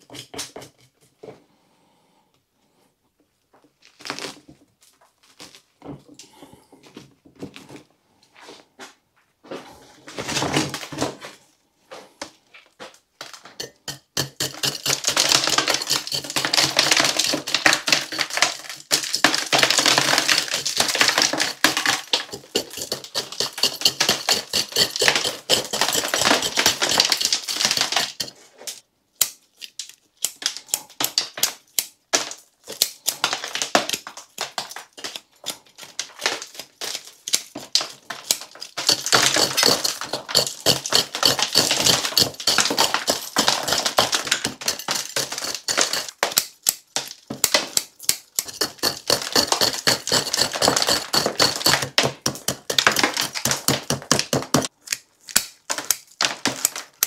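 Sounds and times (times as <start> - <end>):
root rake scratching soil and roots: 20.2 - 28.5, 38.8 - 46.1, 48.4 - 52.8.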